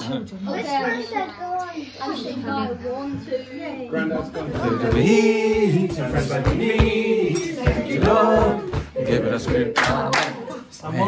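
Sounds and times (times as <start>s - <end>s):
group of people singing: 3.9s - 11.0s
regular low beat: 4.6s - 10.1s.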